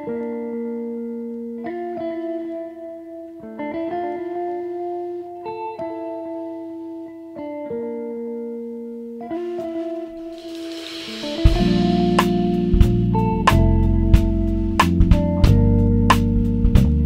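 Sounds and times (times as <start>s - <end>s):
plucked-string melody: 9.3s - 14.8s.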